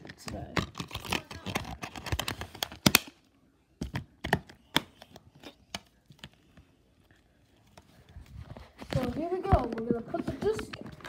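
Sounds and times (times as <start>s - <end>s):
plastic dvd case clicking: 0.0s - 3.2s.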